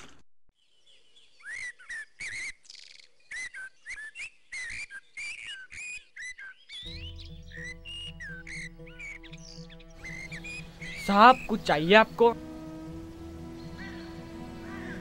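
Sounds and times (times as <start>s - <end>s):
birds chirping: 0.6s - 15.0s
music with low bass: 6.9s - 15.0s.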